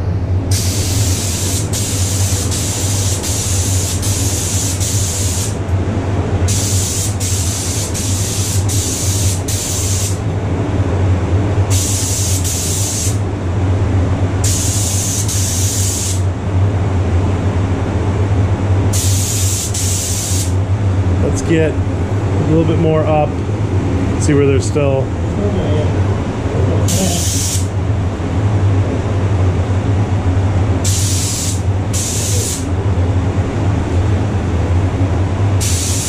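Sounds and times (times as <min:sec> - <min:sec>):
steady low hum: 0:00.0 - 0:36.0
spray gun hissing: 0:00.5 - 0:05.6, 0:06.5 - 0:10.2, 0:11.7 - 0:13.2, 0:14.4 - 0:16.3, 0:18.9 - 0:20.6, 0:26.9 - 0:27.7, 0:30.8 - 0:32.7, 0:35.6 - 0:36.0.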